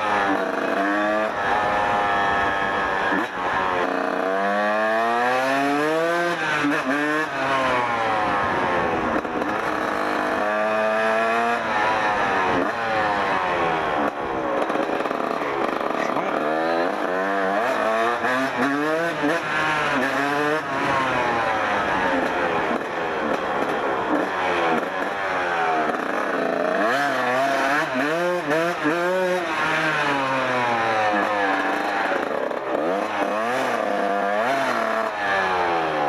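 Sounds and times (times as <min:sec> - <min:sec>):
two-stroke motorcycle engine revving: 0:00.0 - 0:36.0.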